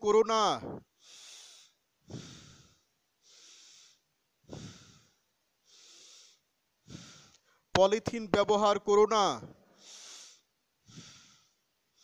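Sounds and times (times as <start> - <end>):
man breathing deeply: 0.6 - 7.7, 9.6 - 12.0.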